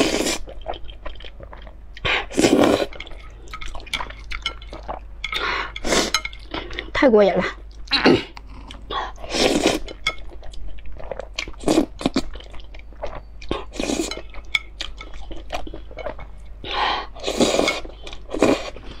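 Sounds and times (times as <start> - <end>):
wet chewing: 0.0 - 6.9.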